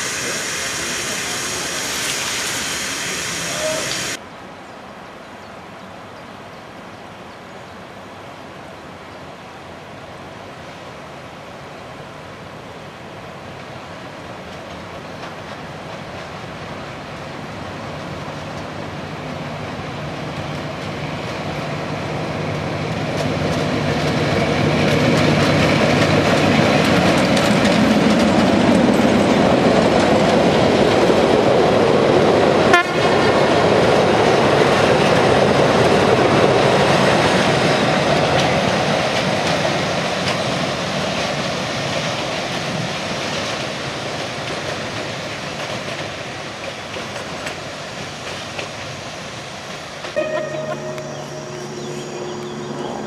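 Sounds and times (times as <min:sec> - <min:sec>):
train wheels and coaches rumbling: 0:00.0 - 0:04.2, 0:12.5 - 0:53.0
diesel locomotive engine running: 0:50.2 - 0:53.0.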